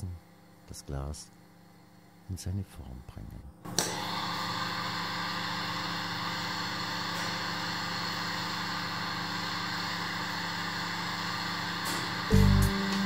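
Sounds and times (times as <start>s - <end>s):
faint low hum: 0.0s - 3.7s
burner flame hissing: 3.7s - 13.0s.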